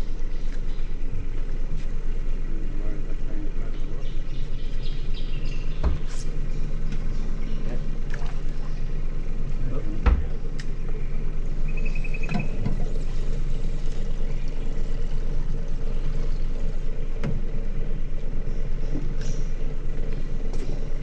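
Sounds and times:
outboard motor idling: 0.0s - 21.0s.

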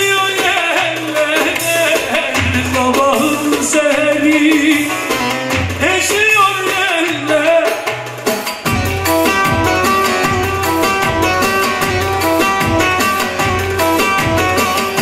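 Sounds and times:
man singing: 0.0s - 8.1s
keyboard: 0.0s - 15.0s
plucked string melody: 8.2s - 15.0s.

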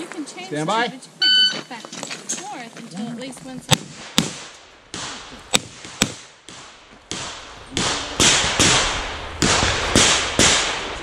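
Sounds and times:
revolver gunshots: 3.7s - 11.0s.

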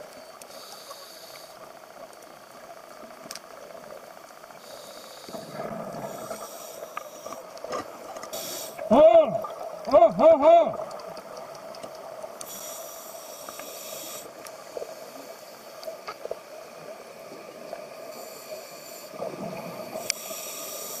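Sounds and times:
scuba regulator breathing hiss: 0.5s - 1.7s, 4.6s - 7.4s, 8.3s - 8.9s, 12.4s - 15.8s, 18.0s - 21.0s.

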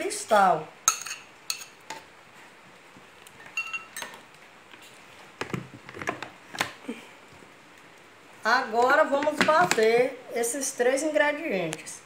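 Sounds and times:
glass and plastic knocking and clinking: 3.5s - 4.2s.

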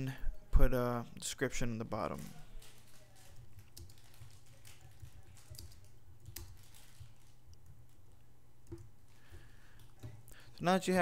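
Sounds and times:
keyboard typing: 3.0s - 10.2s.

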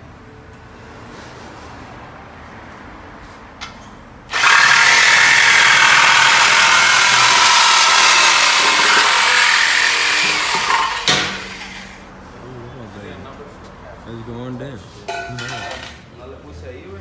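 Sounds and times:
reciprocating saw cutting metal pipe: 4.3s - 12.0s.

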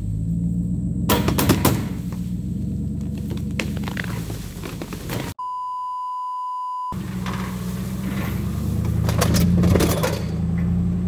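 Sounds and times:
censor bleep: 5.4s - 7.0s.

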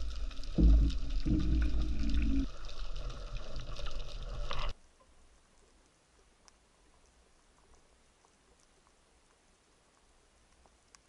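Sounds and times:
underwater rumbling and gurgling: 0.0s - 4.8s.

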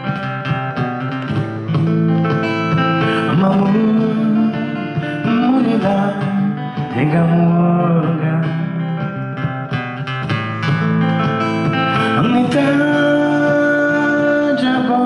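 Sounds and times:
acoustic guitar strumming: 0.0s - 15.0s
man singing: 3.0s - 9.1s, 11.7s - 15.0s.

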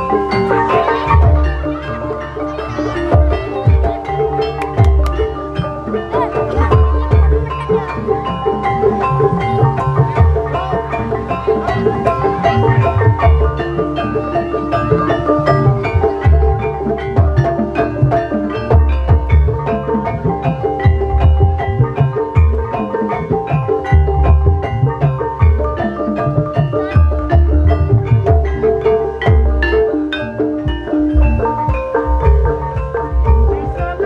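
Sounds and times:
mallet-struck keyed instruments: 0.0s - 34.0s
low drum strokes: 30.7s - 34.0s.

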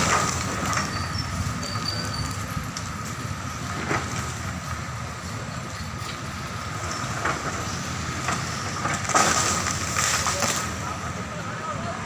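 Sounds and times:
excavator diesel engine droning: 0.0s - 12.0s
branches cracking: 8.2s - 10.8s.

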